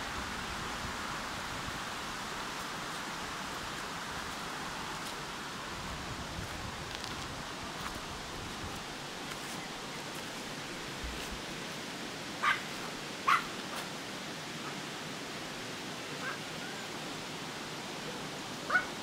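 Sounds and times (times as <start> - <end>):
small dog barking: 12.4 - 13.5, 18.7 - 18.9
faint dog yip: 16.2 - 16.8, 18.7 - 18.9.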